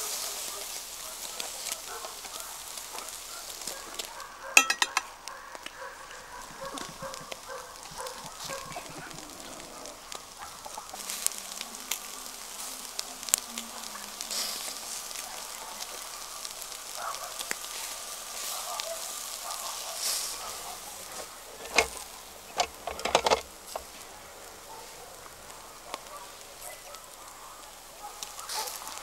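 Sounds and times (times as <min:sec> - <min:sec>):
fire crackling: 0:00.0 - 0:29.0
food sizzling: 0:00.0 - 0:29.0
sharp knocks and clatters: 0:04.6 - 0:05.1.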